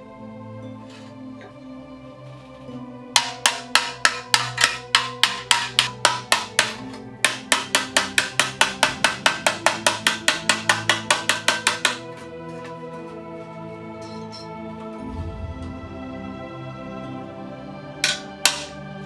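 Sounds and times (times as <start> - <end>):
background music: 0.0 - 19.0
hammer blows on sheet steel: 3.2 - 12.2, 18.0 - 18.8.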